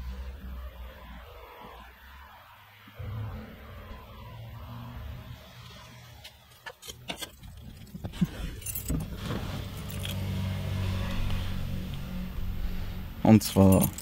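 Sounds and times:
steady low hum: 7.6s - 14.0s
short metallic jingle: 13.4s - 14.0s
handling clicks and knocks: 13.5s - 14.0s.

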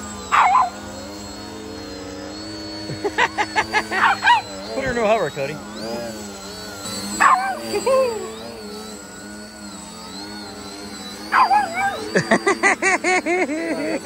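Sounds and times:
model plane motor whining: 0.0s - 14.0s
dog barking and yipping: 0.1s - 1.0s, 3.0s - 4.9s, 7.0s - 8.2s, 11.1s - 13.2s.

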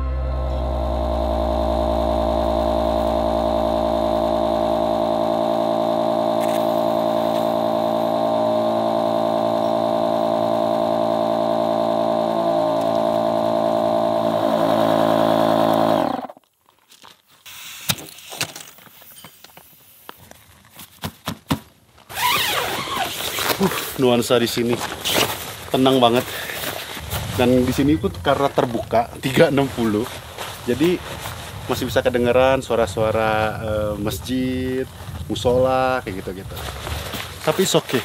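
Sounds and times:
electric air pump running: 0.0s - 16.4s
tent fabric rustling: 22.0s - 28.4s, 29.4s - 31.7s.

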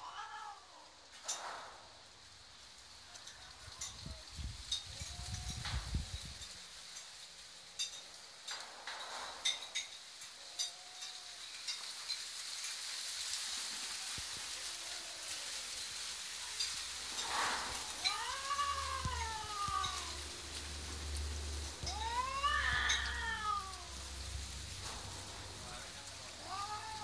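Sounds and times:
crackly hiss with clicks: 0.0s - 27.0s
cat yowling: 17.4s - 20.5s, 21.8s - 24.4s, 26.0s - 27.0s
cat moaning: 21.8s - 24.2s, 26.3s - 27.0s.

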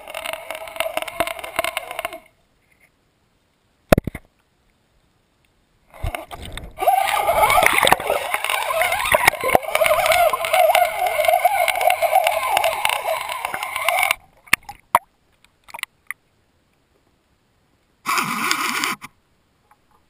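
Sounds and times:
water rushing and gurgling: 0.0s - 3.9s, 4.9s - 16.6s.

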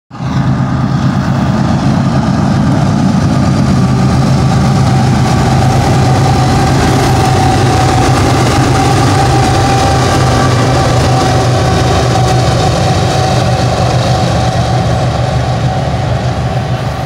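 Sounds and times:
diesel locomotive engines droning: 0.1s - 17.0s
high-pitched whine: 0.2s - 17.0s.

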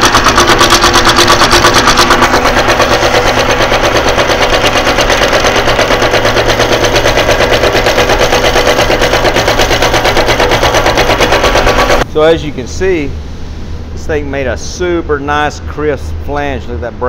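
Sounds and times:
die hammering up and down: 0.0s - 12.0s
steady motor hum: 0.0s - 17.0s.

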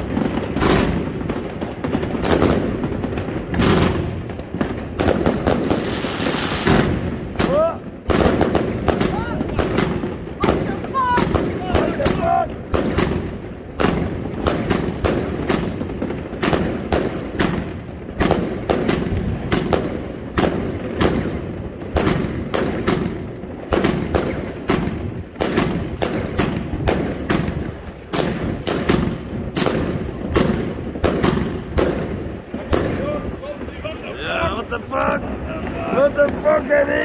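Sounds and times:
fireworks bangs: 0.0s - 37.0s.

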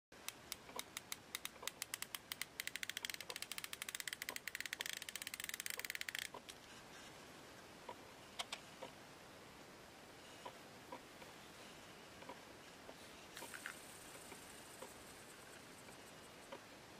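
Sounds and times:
fishing reel drag clicking: 0.3s - 6.3s.

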